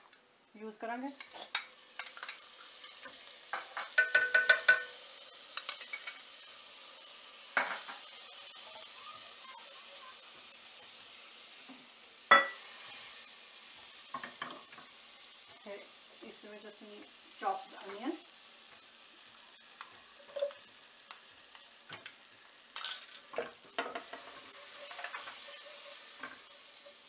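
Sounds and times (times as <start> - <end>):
butter sizzling in saucepans: 0.0 - 27.0
utensils clinking against pans: 1.2 - 6.3, 12.3 - 12.6, 20.2 - 20.6, 22.8 - 27.0
spatulas scraping pans: 22.8 - 27.0.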